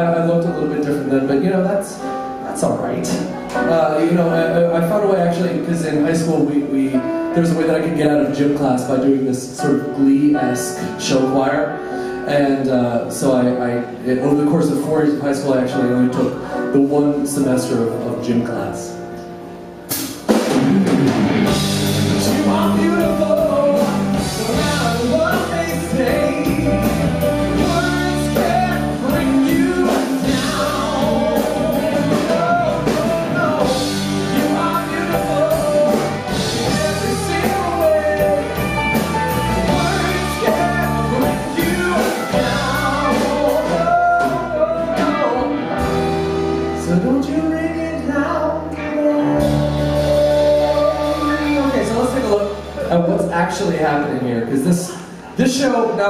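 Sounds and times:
live band with drums: 0:19.8 - 0:47.7, 0:49.2 - 0:53.9
man singing rock song: 0:21.5 - 0:53.7.

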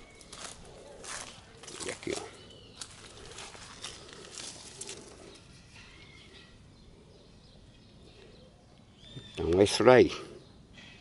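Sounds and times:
footsteps on dry leaves: 0:00.0 - 0:05.4
faint bird calls: 0:00.0 - 0:11.0.

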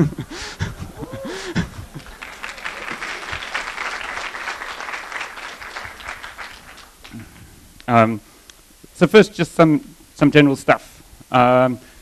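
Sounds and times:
voices calling out: 0:00.0 - 0:04.3
audience applauding: 0:00.0 - 0:07.4.

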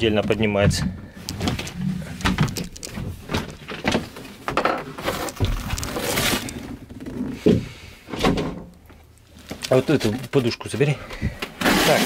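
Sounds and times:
wood scraping: 0:00.2 - 0:08.7
wooden panels knocking and clattering: 0:02.2 - 0:05.9.

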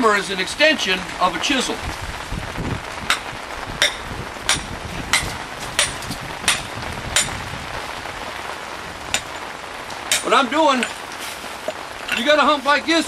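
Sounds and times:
rock hammer striking stone: 0:03.1 - 0:07.4, 0:10.1 - 0:11.0.

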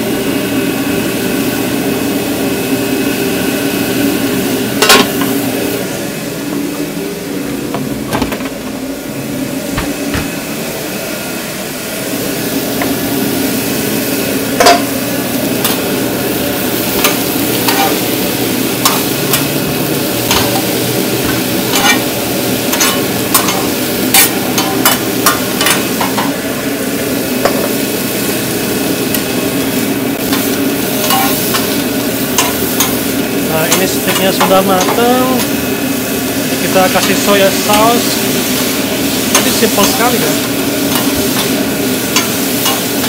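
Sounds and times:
steak sizzling on a griddle: 0:12.1 - 0:43.0
metal utensil tapping griddle: 0:17.0 - 0:18.0, 0:20.3 - 0:20.7, 0:21.3 - 0:22.0, 0:22.7 - 0:26.3, 0:31.0 - 0:31.7, 0:32.4 - 0:33.0, 0:40.9 - 0:43.0.

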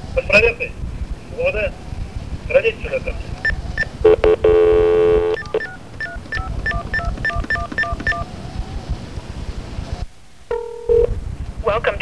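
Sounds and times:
buzzy tone: 0:03.4 - 0:05.7
phone ringing tone: 0:03.4 - 0:08.3, 0:10.5 - 0:11.2
touch-tone keypad beeps: 0:03.4 - 0:08.3.

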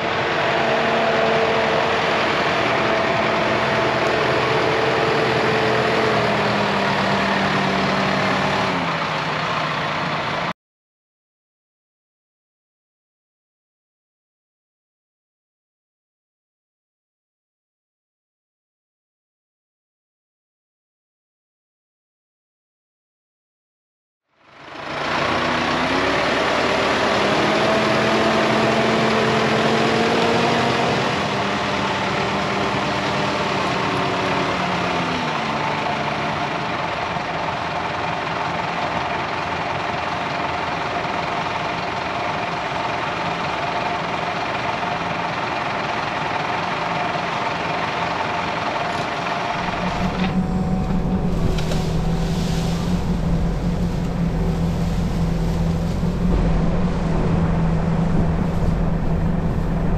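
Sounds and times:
diesel machinery engine running: 0:00.0 - 0:10.5, 0:24.4 - 0:59.9
deep heavy rumble: 0:48.8 - 0:59.9
pitched tones: 0:49.5 - 0:59.9.

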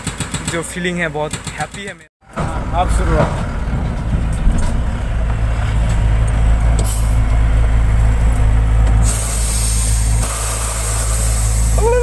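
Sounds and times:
truck engine running: 0:02.2 - 0:12.0
hiss: 0:09.0 - 0:12.0.

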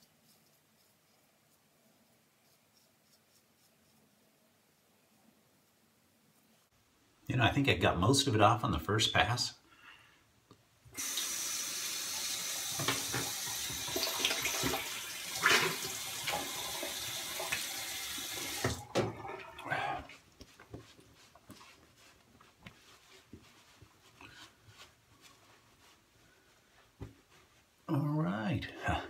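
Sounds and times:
towel dabbing face: 0:00.0 - 0:06.8, 0:13.4 - 0:28.2
tap running into sink: 0:12.6 - 0:19.3.

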